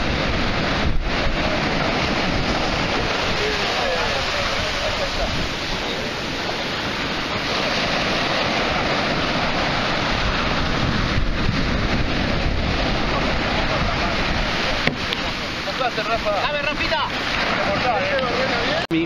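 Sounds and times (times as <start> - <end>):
wind buffeting microphone: 0.0 - 18.8
sea surf breaking: 0.0 - 19.0.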